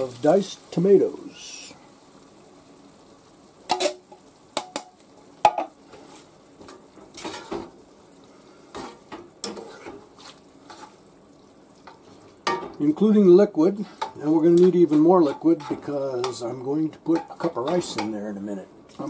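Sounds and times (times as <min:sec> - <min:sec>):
faint sizzle: 0:00.0 - 0:19.0
spatula scraping skillet: 0:05.8 - 0:11.2, 0:13.7 - 0:18.3.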